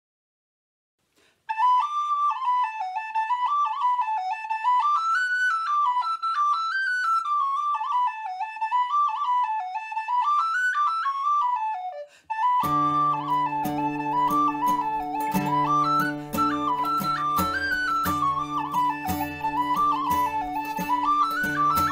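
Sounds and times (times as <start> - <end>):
recorder playing a quick tune: 12.4 - 21.9.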